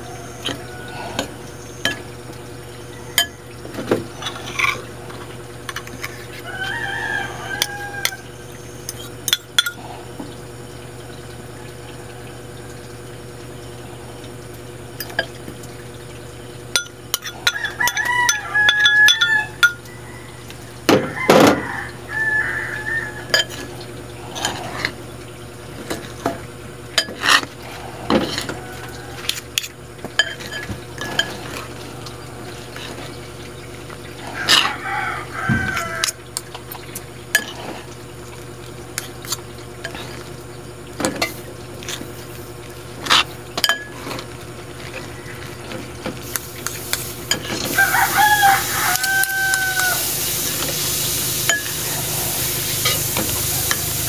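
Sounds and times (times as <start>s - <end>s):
cutlery clinking on ceramic bowls: 8.9s - 9.8s, 16.8s - 19.9s, 23.3s - 23.7s, 30.2s - 31.6s, 43.1s - 44.2s, 51.4s - 51.9s, 52.8s - 53.8s.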